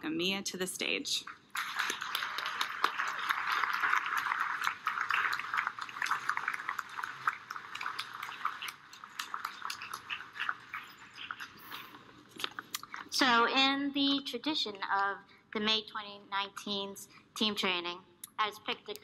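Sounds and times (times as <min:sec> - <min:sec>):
audience applauding: 0:01.5 - 0:12.0.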